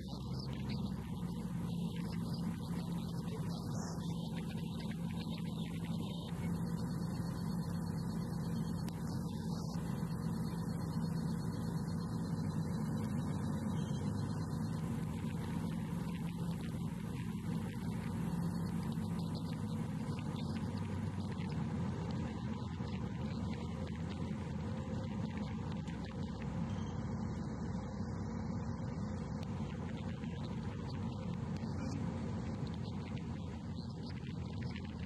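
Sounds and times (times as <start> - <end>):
light aircraft engine drone: 0.0 - 35.0.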